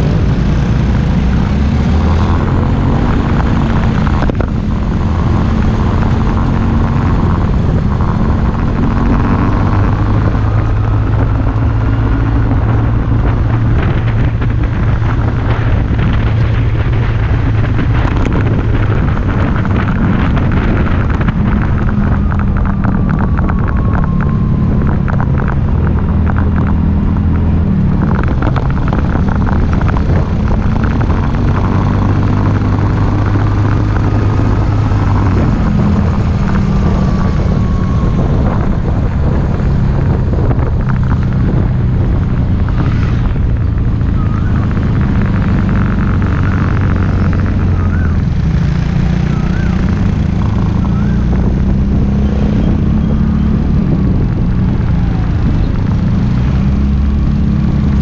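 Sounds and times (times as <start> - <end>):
scooter engine running: 39.9 - 57.4.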